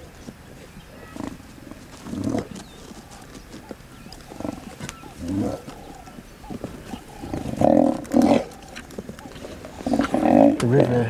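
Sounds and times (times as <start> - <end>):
lions growling: 0.6 - 11.0.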